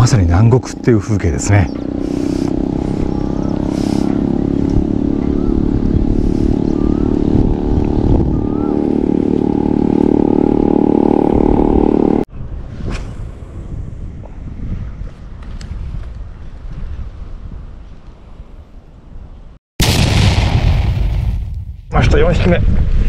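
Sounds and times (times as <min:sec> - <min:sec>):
small engine running: 0:01.7 - 0:12.2.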